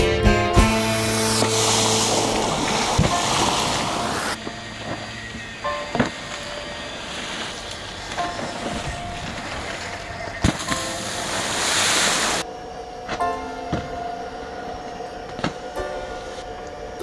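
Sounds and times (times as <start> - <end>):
rushing water and spray hiss: 0.6 - 17.0.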